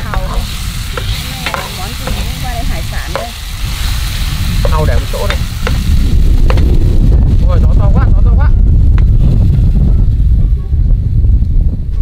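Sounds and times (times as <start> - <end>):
seafood sizzling in a pan: 0.0 - 6.6
strong low rumble: 0.0 - 12.0
utensil clicking against pan: 1.0 - 2.4.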